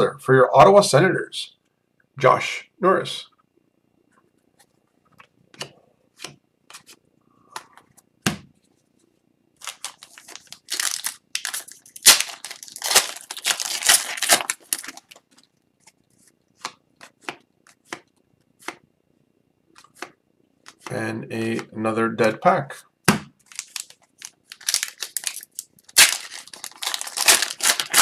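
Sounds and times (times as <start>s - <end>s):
card pack wrapper crinkling: 9.6s - 16.0s, 23.4s - 28.0s
trading cards being handled: 9.6s - 18.8s, 23.4s - 28.0s.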